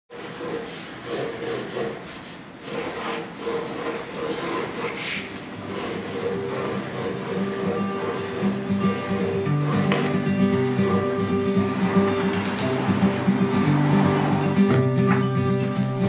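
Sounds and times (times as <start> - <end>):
pencil scratching on paper: 0.1 - 14.5
faint music: 5.0 - 16.0.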